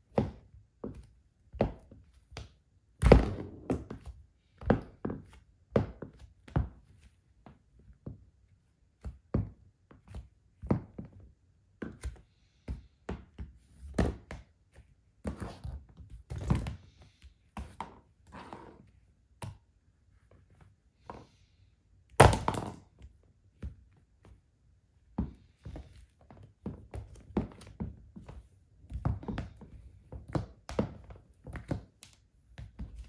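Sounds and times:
high heels on hardwood floor: 0:00.1 - 0:06.8, 0:22.2 - 0:22.8, 0:25.2 - 0:31.9.

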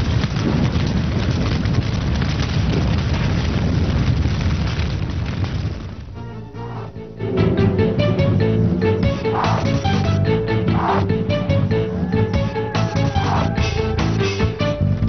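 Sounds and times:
rumbling music: 0:05.8 - 0:15.0.

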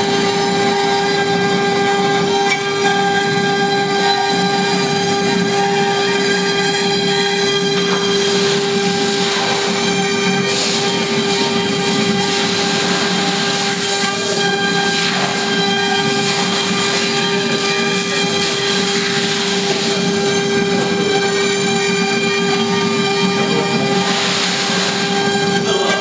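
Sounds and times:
router spindle whine: 0:00.0 - 0:26.0
hiss of wood cutting: 0:07.8 - 0:21.6, 0:22.6 - 0:26.0.

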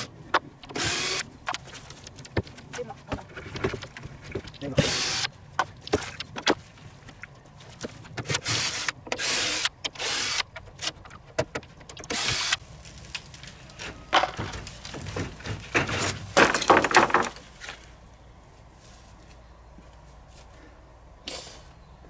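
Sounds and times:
wooden knocks and clatter: 0:01.4 - 0:04.8, 0:13.0 - 0:17.8.

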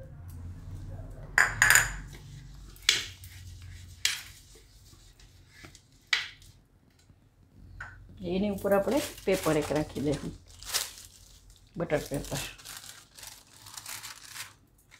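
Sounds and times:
metal pan clinks and knocks: 0:01.4 - 0:02.0.

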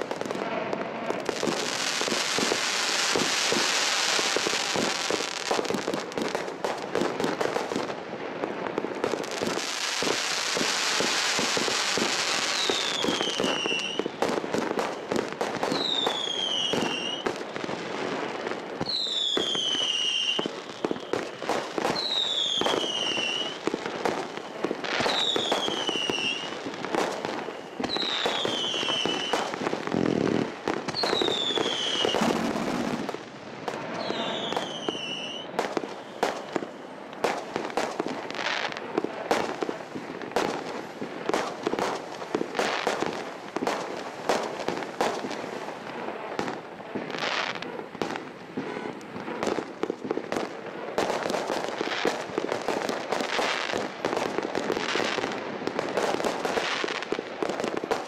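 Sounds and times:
firework cracks and bangs: 0:00.0 - 0:58.0
high falling firework whistle: 0:11.5 - 0:14.2, 0:14.8 - 0:17.3, 0:18.8 - 0:23.6, 0:25.0 - 0:26.5, 0:27.3 - 0:29.5, 0:30.9 - 0:33.0, 0:33.9 - 0:37.0.

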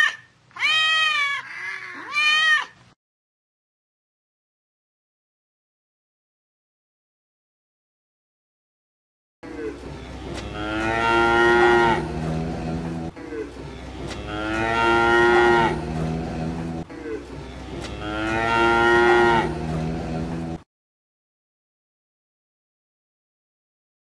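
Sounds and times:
cow mooing: 0:09.9 - 0:20.6.

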